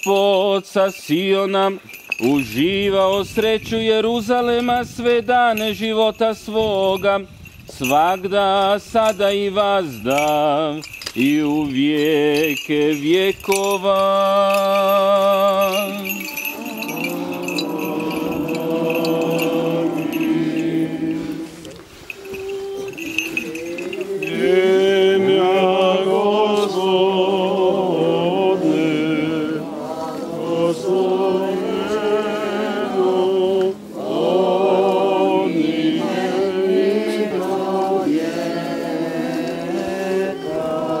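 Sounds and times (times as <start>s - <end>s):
group singing a hymn: 8.2s - 41.0s.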